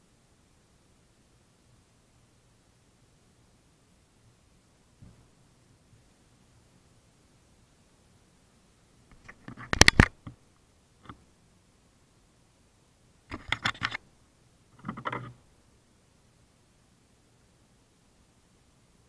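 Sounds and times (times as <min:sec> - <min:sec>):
fingers handling camera microphone: 0:09.1 - 0:10.4, 0:13.3 - 0:14.0, 0:14.8 - 0:15.4.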